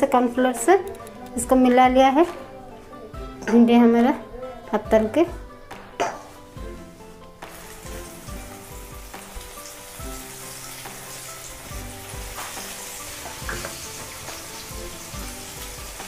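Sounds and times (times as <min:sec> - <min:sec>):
okra sizzling in hot oil: 0:07.4 - 0:16.0.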